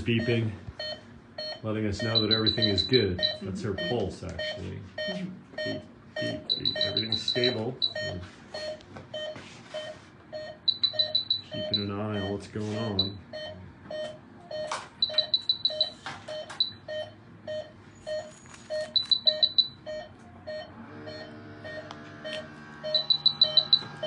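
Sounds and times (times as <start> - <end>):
monitor beeping steadily: 0.0 - 24.0
quick higher-pitched beeps: 5.0 - 8.8, 10.7 - 13.2, 15.0 - 16.0, 18.1 - 19.8, 22.9 - 23.9.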